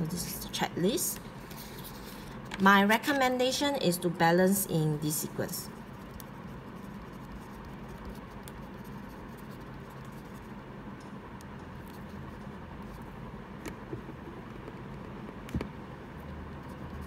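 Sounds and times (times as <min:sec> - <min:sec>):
room hum: 0:00.0 - 0:17.0
marker pen scratching on paper: 0:05.8 - 0:10.6, 0:11.8 - 0:13.1.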